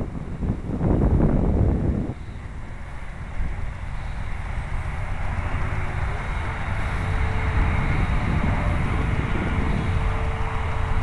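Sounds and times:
electric motor whine overhead: 0.0 - 11.0
wind buffeting microphone: 0.0 - 11.0.

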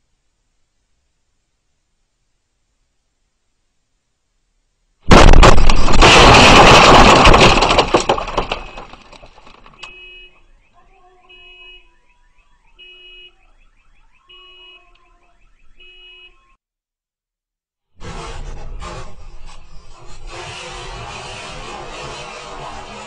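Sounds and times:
gas explosion blast: 5.1 - 7.4
faint car alarm: 9.7 - 16.6.

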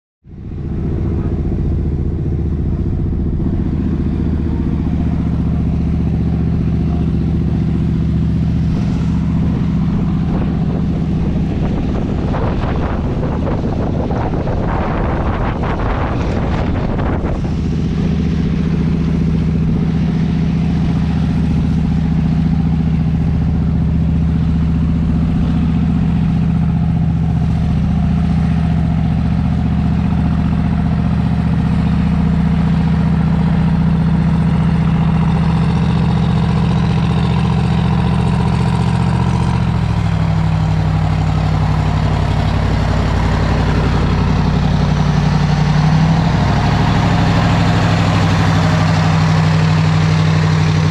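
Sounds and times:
boat engine droning: 0.2 - 50.9
water rushing along hull: 0.4 - 50.9.

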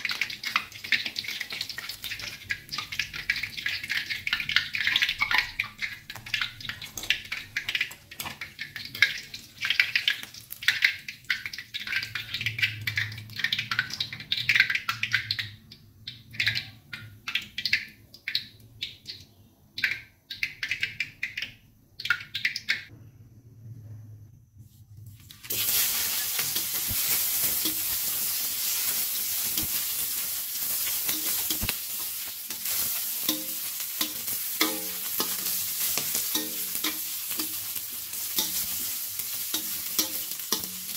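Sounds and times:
loud steady sizzle: 0.0 - 17.8, 25.2 - 40.9
deep-frying oil crackling: 0.0 - 22.9, 25.2 - 40.9
spatula stirring in wok: 25.3 - 40.9.

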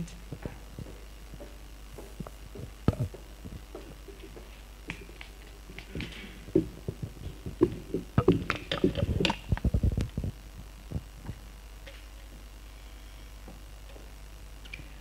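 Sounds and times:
low hum: 0.0 - 15.0
low thumps and knocks: 5.9 - 11.4.

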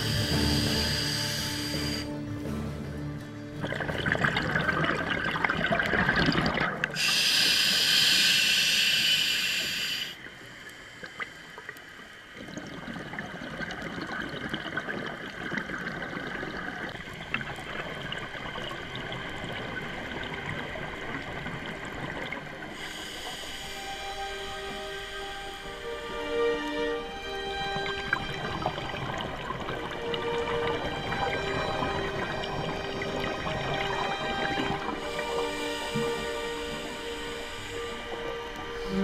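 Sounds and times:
hiss of inhaled air: 0.0 - 2.1, 7.0 - 10.2, 22.8 - 26.2, 35.0 - 39.0
exhaled bubbles: 3.6 - 10.4, 11.0 - 23.4, 27.5 - 39.0.

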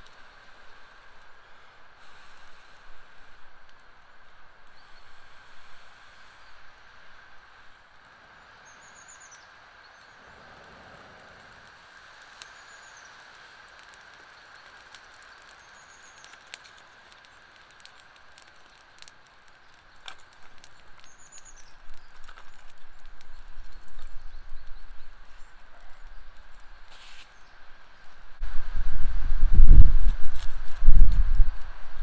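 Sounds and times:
campfire crackling and popping: 0.0 - 32.0.

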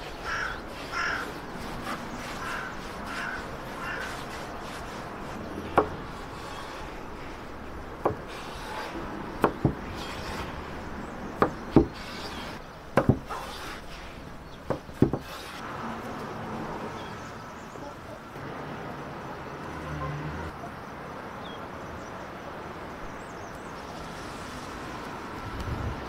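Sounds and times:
sharp knocks on wood: 13.0 - 13.4, 14.7 - 15.3.

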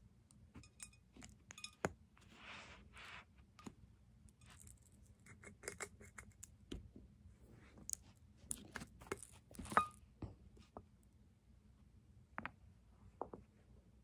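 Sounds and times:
ringing glass clink: 0.6 - 1.8
glass jar clicks and taps: 0.6 - 1.9.

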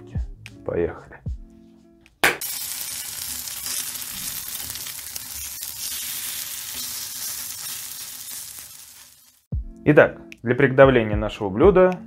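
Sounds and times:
food sizzling in hot oil: 2.4 - 9.5.

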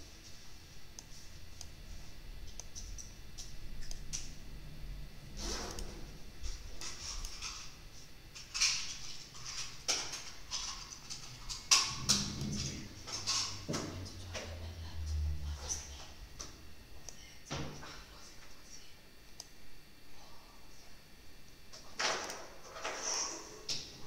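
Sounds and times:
low hum: 0.0 - 21.8
computer clicks: 2.4 - 4.3.

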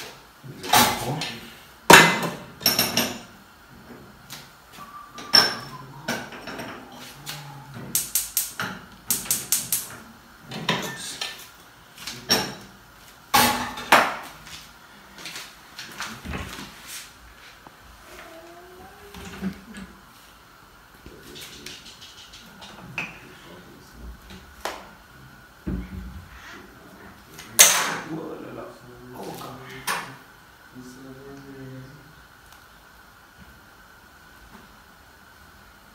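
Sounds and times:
pots and lids clanking: 5.2 - 7.0.

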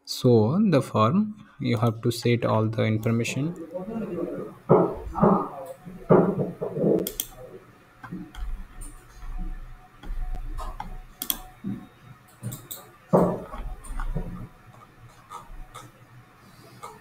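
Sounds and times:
computer mouse clicks: 6.9 - 7.4, 8.0 - 9.3, 10.0 - 11.5, 12.3 - 16.0, 16.7 - 17.0.

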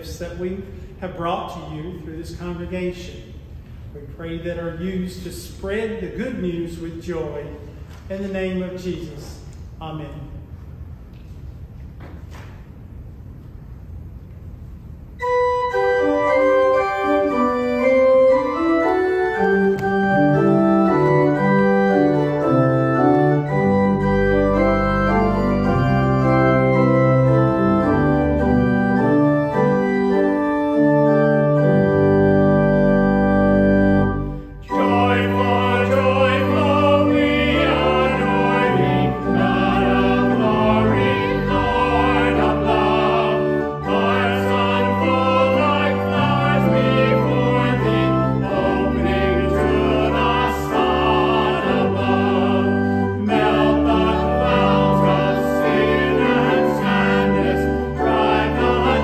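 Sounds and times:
church organ chords: 0.0 - 9.2, 15.1 - 59.0
deep organ bass pedal notes: 15.2 - 59.0.

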